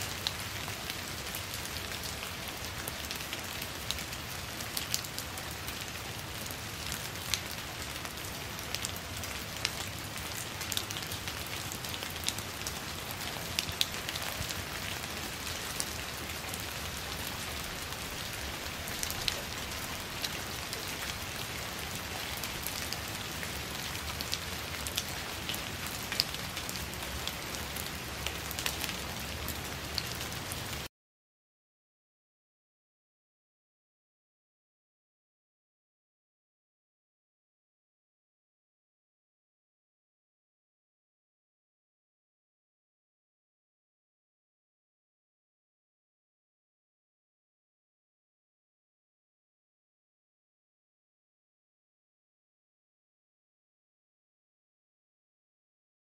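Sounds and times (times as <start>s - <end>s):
rain falling on leaves: 0.0s - 30.9s.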